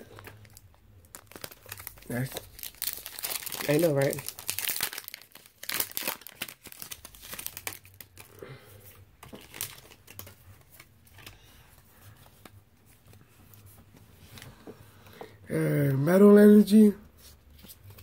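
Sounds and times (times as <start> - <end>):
foil wrapper crinkling and tearing: 0.1 - 8.4, 9.4 - 10.4.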